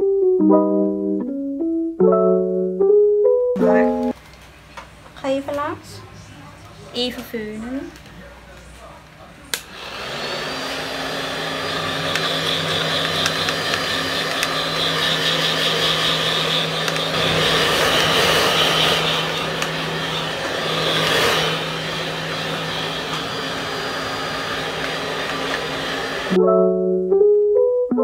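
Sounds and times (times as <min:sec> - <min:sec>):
hair dryer running: 0:09.5 - 0:26.4.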